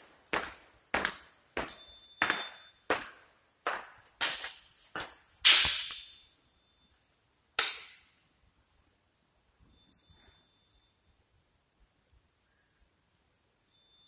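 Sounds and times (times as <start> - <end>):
footsteps on hard floor: 0.0 - 5.7.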